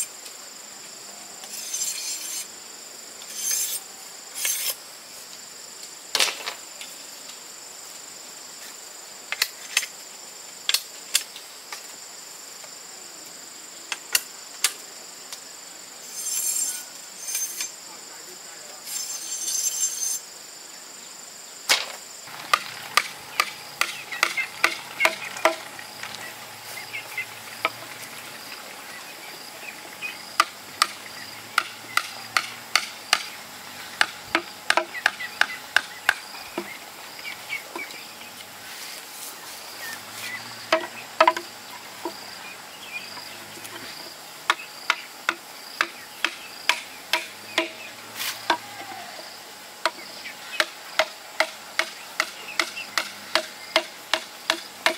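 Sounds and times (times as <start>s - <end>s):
high insect trill: 0.0s - 54.9s
blade chopping bamboo: 22.3s - 26.0s, 31.6s - 33.4s, 34.0s - 36.7s, 44.5s - 47.8s, 50.6s - 54.9s.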